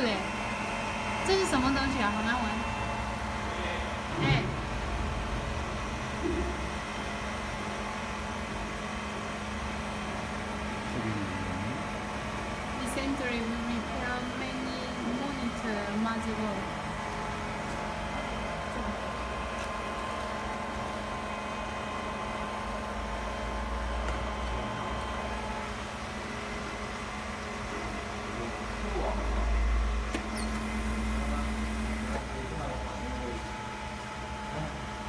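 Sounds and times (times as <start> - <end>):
electrical machine hum: 0.0 - 35.0
low rumbles: 4.0 - 7.2.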